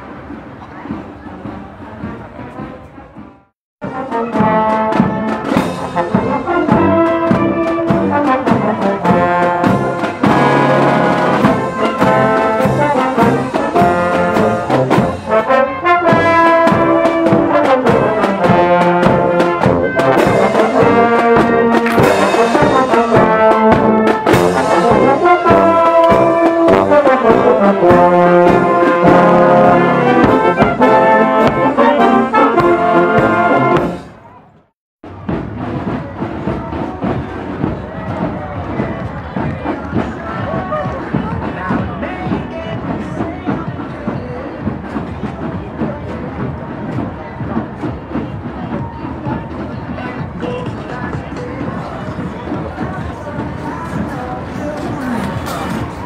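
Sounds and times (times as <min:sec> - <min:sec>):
snare and bass drums: 0:00.0 - 0:34.2, 0:35.0 - 0:56.0
trumpets and trombones playing: 0:03.8 - 0:34.2.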